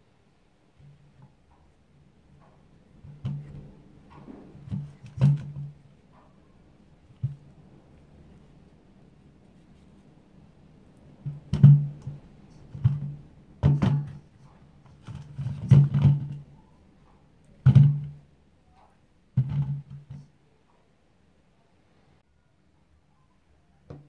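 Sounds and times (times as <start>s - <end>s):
sweet potatoes thunking in metal bowl: 0.8s - 6.4s, 11.2s - 18.3s, 19.3s - 20.3s.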